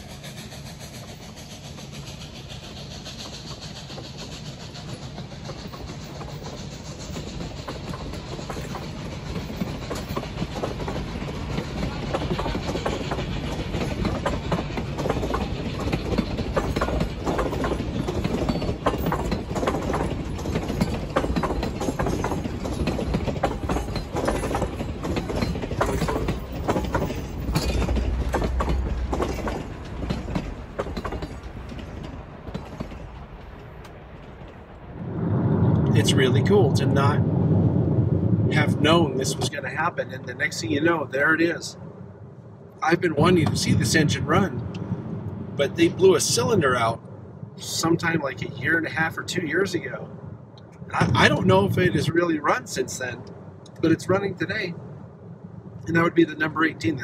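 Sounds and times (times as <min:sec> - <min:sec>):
train wheels clattering over rails: 0:00.0 - 0:34.8.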